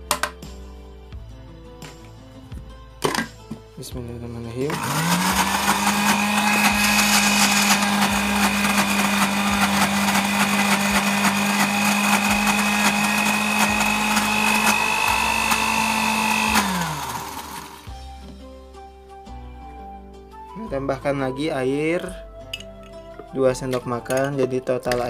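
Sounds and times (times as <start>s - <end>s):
blender motor running: 4.7s - 17.9s.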